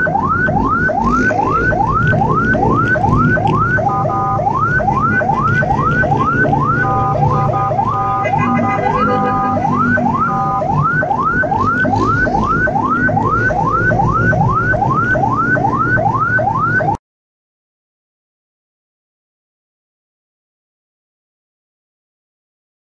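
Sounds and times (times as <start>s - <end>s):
low vehicle hum: 0.0s - 16.9s
ambulance siren yelping: 0.0s - 17.0s.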